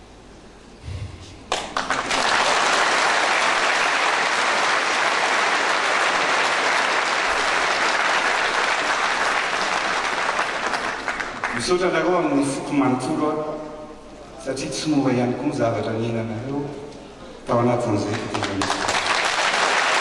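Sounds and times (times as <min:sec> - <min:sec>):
audience applauding: 0:01.5 - 0:11.8, 0:18.0 - 0:20.0.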